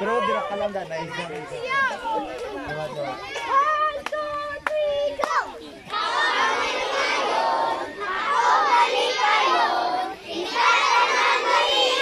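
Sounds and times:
children singing together: 0:05.9 - 0:12.0.

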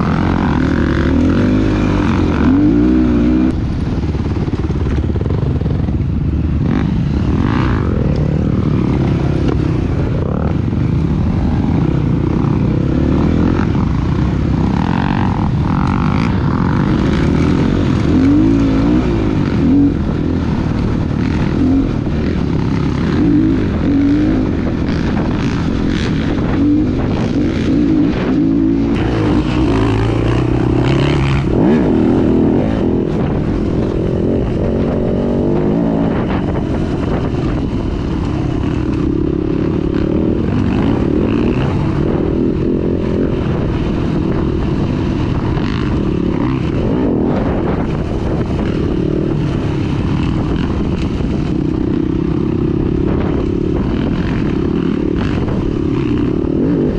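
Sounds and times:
dirt bike engine revving: 0:00.0 - 0:56.9.

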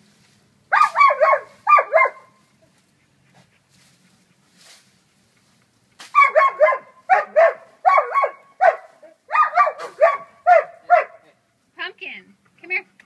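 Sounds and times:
dog barking: 0:00.7 - 0:02.4, 0:06.2 - 0:11.3.

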